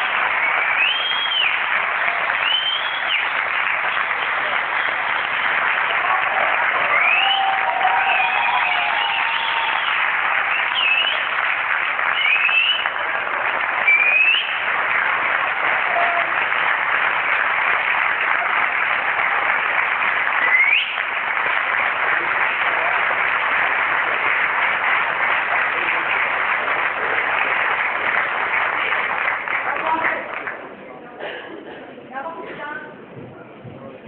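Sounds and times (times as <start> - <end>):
audience applauding: 0.0 - 31.3
rising whistles: 0.4 - 1.6, 2.4 - 3.3, 6.9 - 7.5, 10.5 - 11.3, 12.1 - 12.9, 13.9 - 14.6, 20.4 - 21.0.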